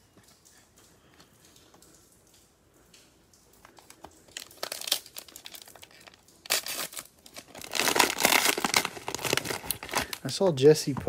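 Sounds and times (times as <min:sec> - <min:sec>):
cellophane wrapper crinkling: 0:03.6 - 0:11.0.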